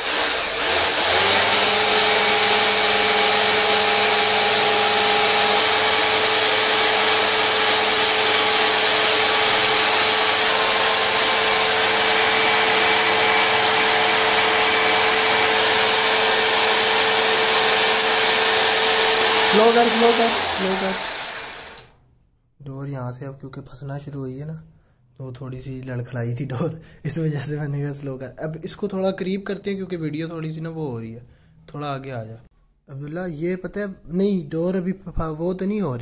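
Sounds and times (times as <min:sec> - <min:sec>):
electric drill whirring: 0:00.0 - 0:21.9.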